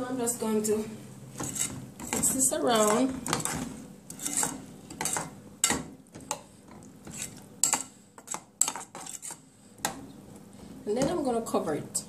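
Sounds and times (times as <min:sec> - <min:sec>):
metal spoon stirring in pot: 0:01.3 - 0:10.0.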